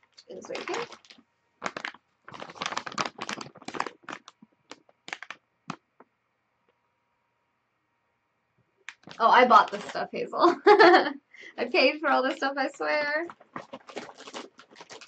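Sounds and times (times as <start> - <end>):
plastic bag crinkling: 0.0 - 5.8, 8.9 - 10.8, 11.6 - 15.0.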